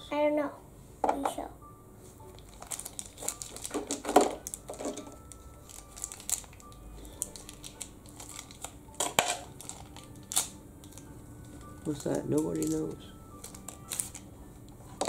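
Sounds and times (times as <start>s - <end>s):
foil wrapper crinkling and tearing: 2.4s - 14.3s.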